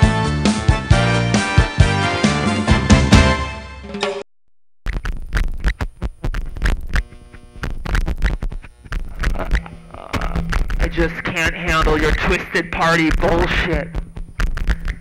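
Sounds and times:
buzzing synthesizer tones: 0:04.9 - 0:15.0
synthesizer crackling and clicks: 0:04.9 - 0:15.0.

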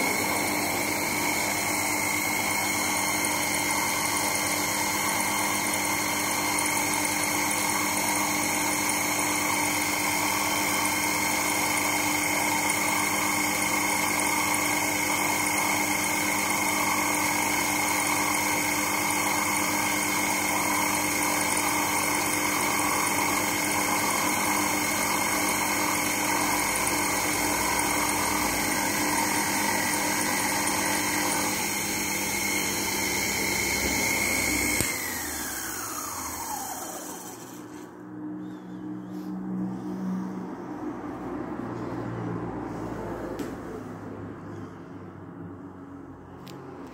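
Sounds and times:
mini lathe whining: 0:00.0 - 0:38.4.

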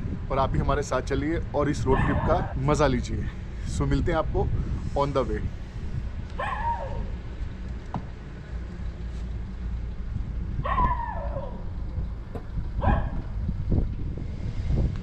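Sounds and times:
steady low rumble: 0:00.0 - 0:15.0
dog barking: 0:01.9 - 0:02.5, 0:06.4 - 0:07.1, 0:10.6 - 0:11.6, 0:12.8 - 0:13.3.

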